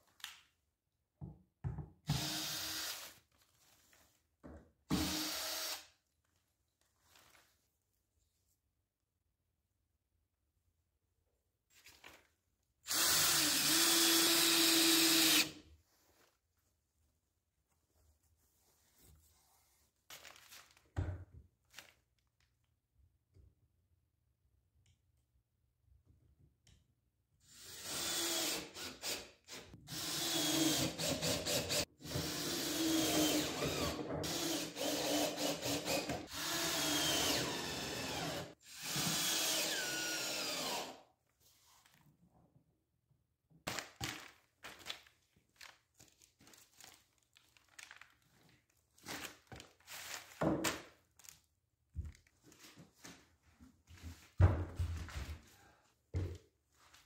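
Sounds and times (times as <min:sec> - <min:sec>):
cordless drill driving screws: 0:12.9 - 0:15.5, 0:27.6 - 0:41.0.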